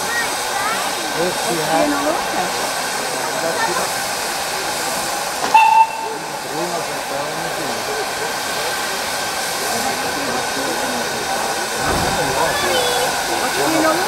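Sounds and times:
faint murmur of voices: 0.0 - 14.0
steam hissing from locomotive: 0.0 - 14.0
high whistle toot: 5.5 - 6.2.

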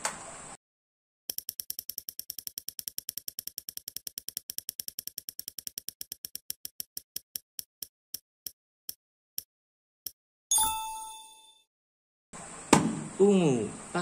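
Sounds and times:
spinning wheel ticking: 1.3 - 9.0.

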